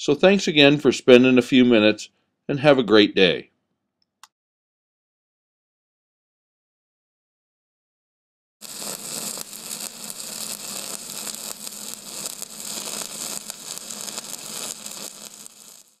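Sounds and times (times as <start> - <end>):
welding arc crackling: 8.6 - 16.0.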